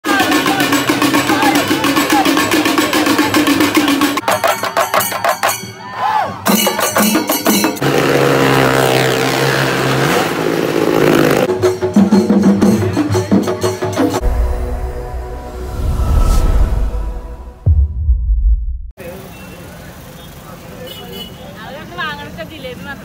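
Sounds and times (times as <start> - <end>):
rhythmic drumming: 0.0 - 5.8, 6.4 - 7.8, 11.4 - 15.3
deep rumble: 14.2 - 19.0.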